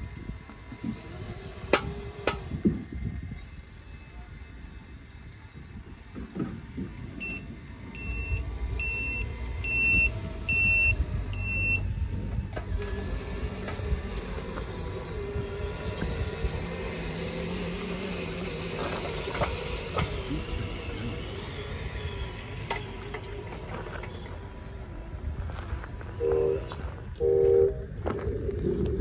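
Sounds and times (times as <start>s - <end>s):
low engine rumble: 0.0s - 29.0s
steady hum: 0.0s - 29.0s
short high warning beeps: 3.3s - 13.2s, 26.2s - 28.0s.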